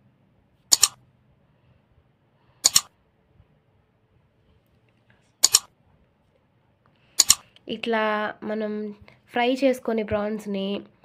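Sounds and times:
double mouse-click sound effects: 0:00.7 - 0:01.0, 0:02.6 - 0:02.9, 0:05.4 - 0:05.7, 0:07.2 - 0:07.5.

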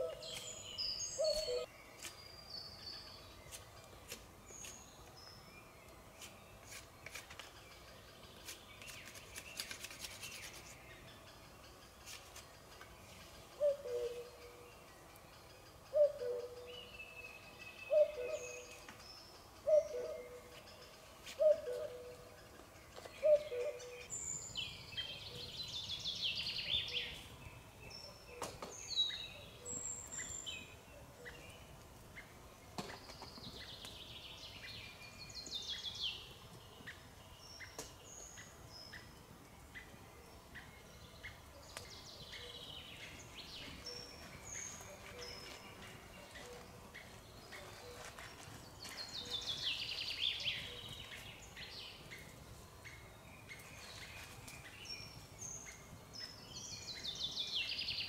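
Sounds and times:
high bird chirps: 0:00.0 - 0:02.1.

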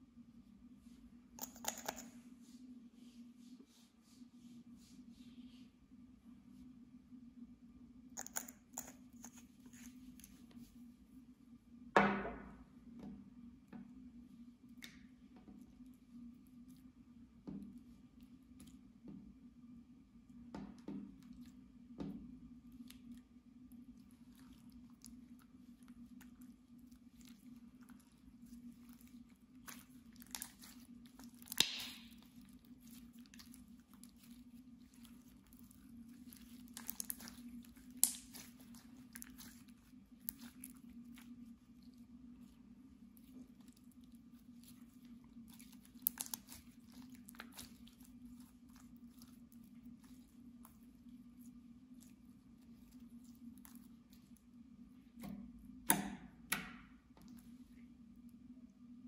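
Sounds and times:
low steady hum: 0:00.0 - 0:59.0
slime squelching: 0:22.6 - 0:55.8
slime sticky crackles and pops: 0:29.7 - 0:34.2, 0:36.3 - 0:40.8, 0:45.5 - 0:48.1.

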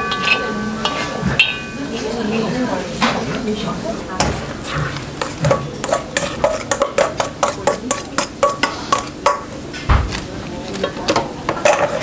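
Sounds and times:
metal spoon scraping steel bowl: 0:00.0 - 0:01.9, 0:04.6 - 0:09.1.

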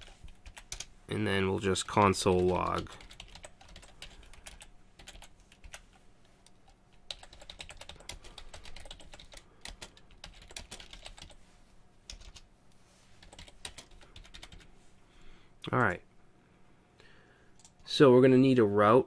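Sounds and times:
computer keyboard typing: 0:00.0 - 0:00.9, 0:01.7 - 0:11.4, 0:12.1 - 0:12.5, 0:13.2 - 0:14.7.

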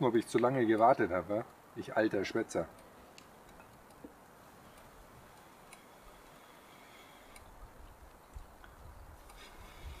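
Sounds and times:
faint ticks: 0:02.6 - 0:10.0.

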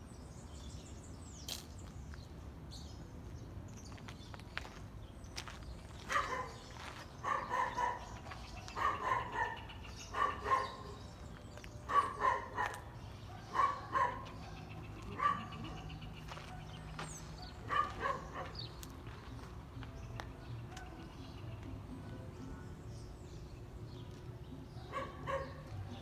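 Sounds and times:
dog barking: 0:06.1 - 0:11.0, 0:11.9 - 0:16.8, 0:17.4 - 0:18.6, 0:24.8 - 0:26.0.

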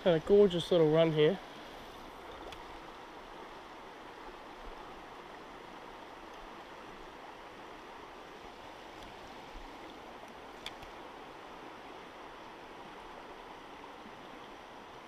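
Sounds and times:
river water rushing over rocks: 0:00.0 - 0:15.0
small click: 0:10.6 - 0:10.9.

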